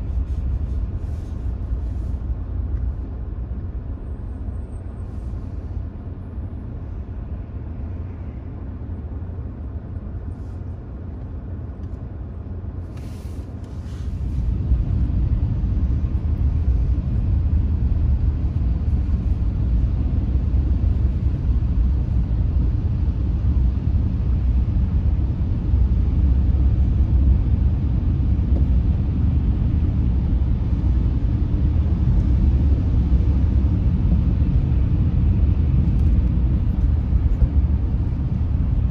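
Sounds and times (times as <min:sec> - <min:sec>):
car driving rumble: 0:00.0 - 0:38.9.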